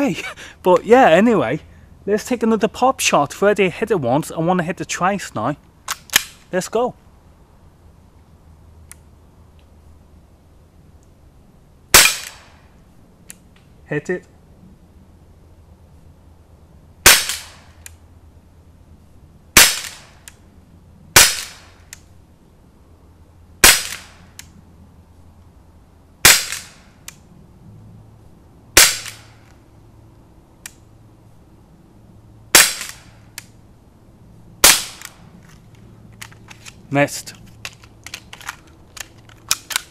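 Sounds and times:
air pistol cracks: 0:05.9 - 0:06.5, 0:26.2 - 0:27.2, 0:28.8 - 0:29.6, 0:32.6 - 0:33.6, 0:34.6 - 0:35.6.

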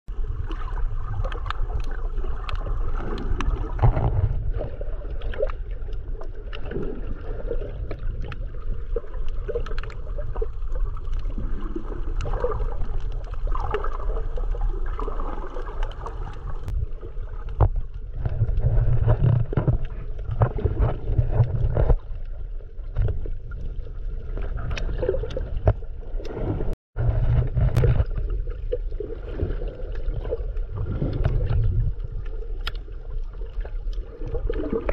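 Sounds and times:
muffled underwater water rumble: 0:00.1 - 0:34.9
underwater clicks and crackles: 0:00.1 - 0:34.9.

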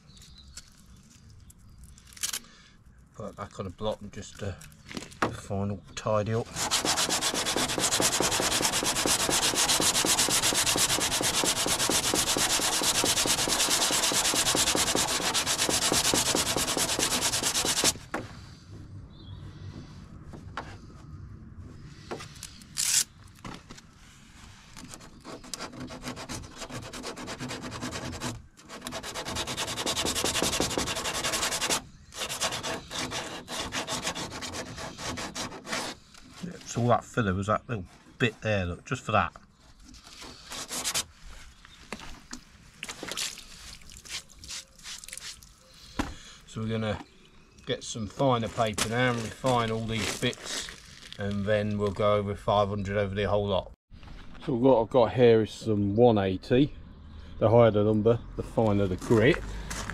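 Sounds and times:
sandpaper scratching strokes: 0:06.4 - 0:18.0, 0:24.2 - 0:36.8, 0:40.0 - 0:41.5, 0:43.6 - 0:45.4.

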